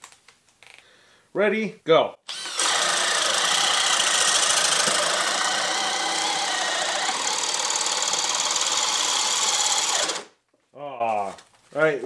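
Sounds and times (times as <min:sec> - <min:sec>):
power drill boring into wood: 0:02.3 - 0:10.3.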